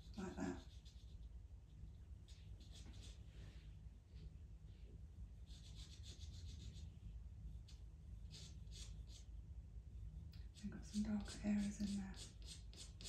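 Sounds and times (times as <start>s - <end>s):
pastel pencil scratching on paper: 0.0s - 1.3s, 2.3s - 3.3s, 5.5s - 6.9s, 8.3s - 9.3s, 10.6s - 13.0s.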